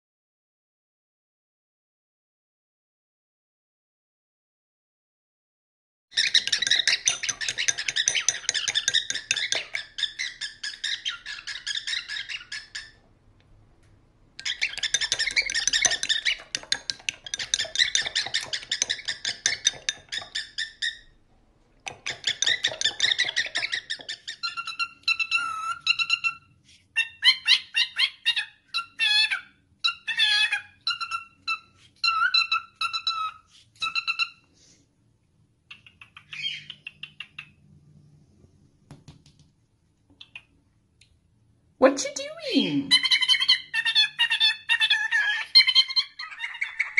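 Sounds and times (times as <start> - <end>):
cockatiel chattering: 6.2 - 13.0, 14.4 - 21.2, 21.8 - 34.4, 35.7 - 37.6, 42.9 - 46.9.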